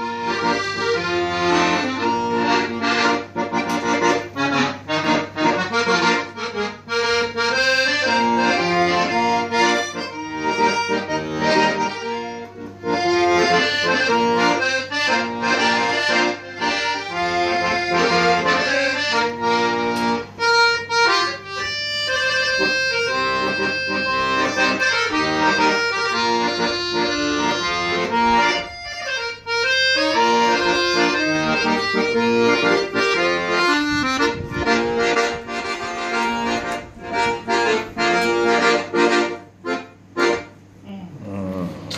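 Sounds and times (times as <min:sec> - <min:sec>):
piano accordion melody: 0:00.0 - 0:40.8.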